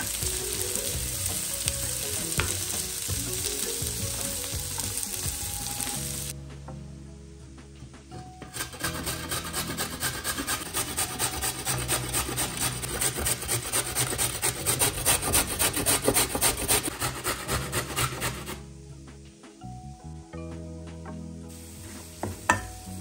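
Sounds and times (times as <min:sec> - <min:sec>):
carrot grated on metal grater: 0:08.6 - 0:18.5.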